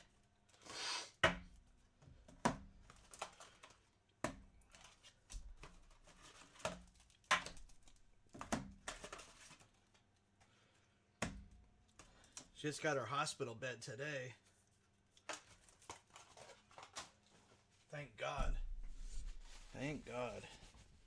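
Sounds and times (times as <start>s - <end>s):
rustling: 14.4s - 21.0s.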